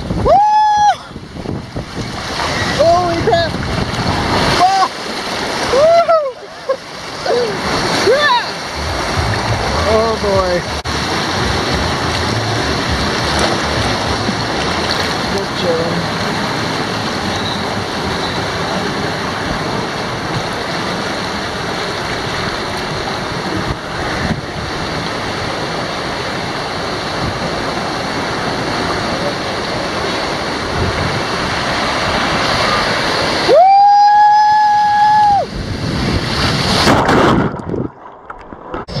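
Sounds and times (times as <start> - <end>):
water rushing in slide channel: 0.0 - 39.0
short splash: 36.2 - 39.0.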